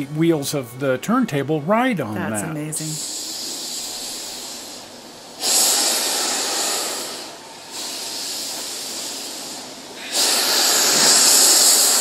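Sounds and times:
steam hissing from locomotive: 2.8s - 12.0s.

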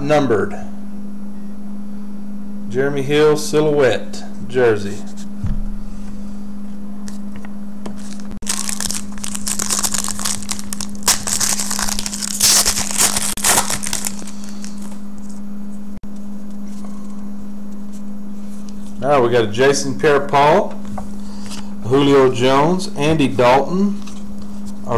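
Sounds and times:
steady low hum: 0.0s - 24.9s
foil pack tearing and crinkling: 8.0s - 15.0s.

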